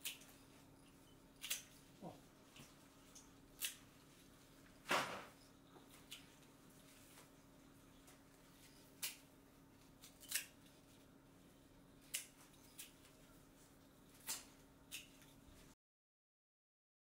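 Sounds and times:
scissors snipping: 0.0 - 0.3, 1.4 - 1.8, 2.6 - 3.9, 8.9 - 10.7, 12.0 - 13.2, 14.1 - 15.4
faint steady hum: 0.0 - 15.8.

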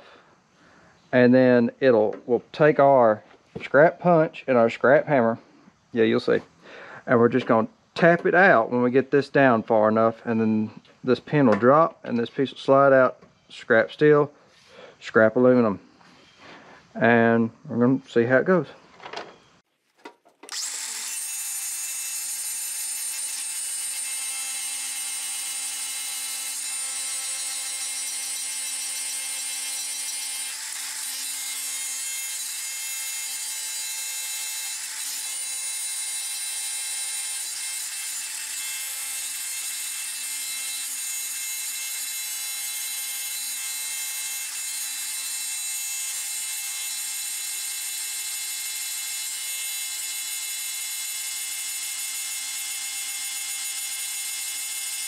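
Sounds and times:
angle grinder grinding steel: 20.4 - 55.0.

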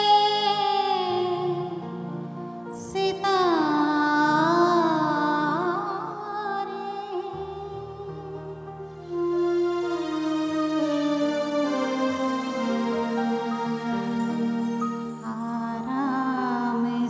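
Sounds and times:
woman singing with vibrato: 0.0 - 1.9, 2.8 - 8.4, 15.2 - 17.0
instrumental accompaniment: 6.7 - 17.0.

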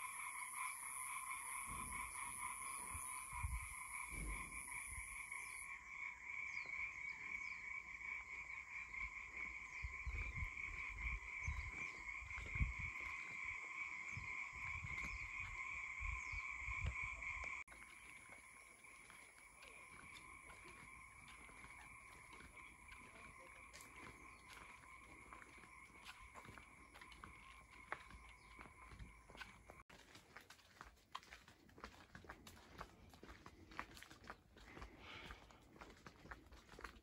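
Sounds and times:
chorus of trilling animals: 8.1 - 29.8.

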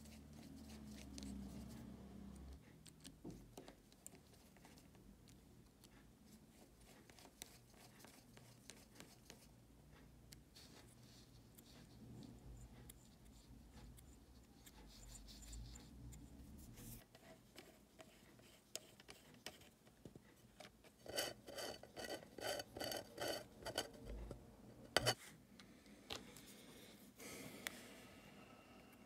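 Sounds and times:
faint handling clicks and rubbing: 0.1 - 25.2
screwdriver squeaky scrapes: 21.0 - 23.9.

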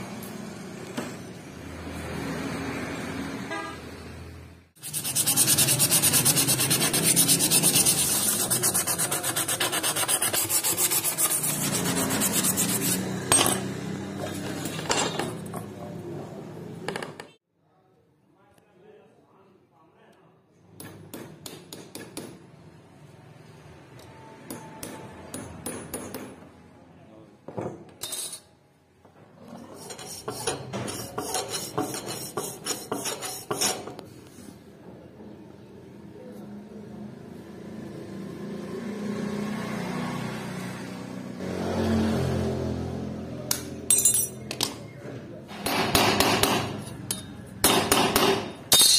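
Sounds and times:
hand file rasping on steel: 4.8 - 13.1, 29.6 - 33.8
sandpaper rubbing on metal: 4.8 - 13.1, 29.6 - 33.8.

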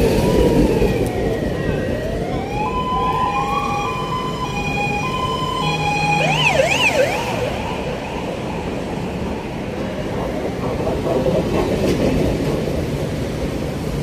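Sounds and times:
emergency vehicle siren: 0.0 - 10.1
street and tram noise: 0.0 - 14.0.

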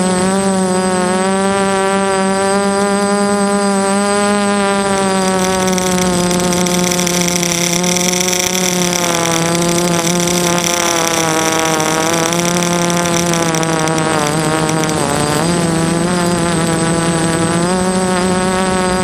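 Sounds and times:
drone motors and propellers whining: 4.8 - 18.8.

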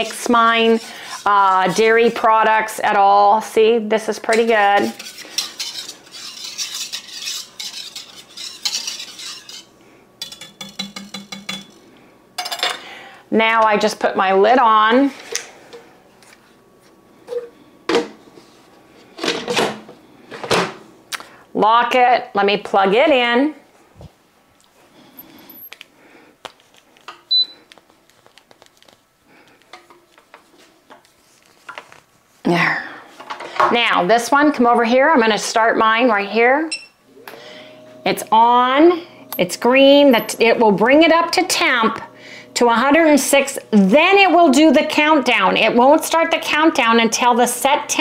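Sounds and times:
whisk swishing and scraping metal: 0.0 - 2.8, 4.2 - 11.8
whisk clinking against pot: 4.3 - 11.8.

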